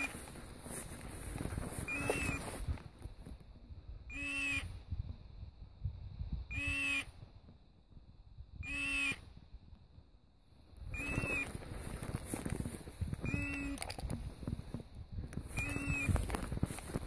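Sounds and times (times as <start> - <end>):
footsteps through dry grass: 0.0 - 3.5, 10.5 - 17.0.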